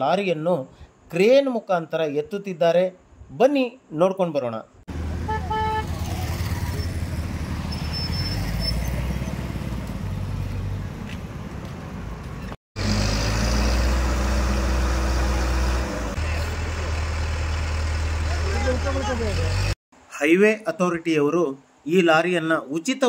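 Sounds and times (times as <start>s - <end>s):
vehicle engines rumbling: 4.9s - 19.8s
horn-like tone: 5.2s - 6.0s
heavy crane engine running: 12.8s - 19.8s.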